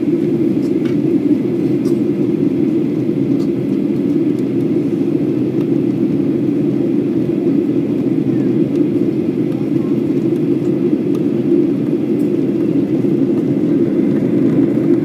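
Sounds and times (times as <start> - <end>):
jet engines roaring: 0.0 - 15.0.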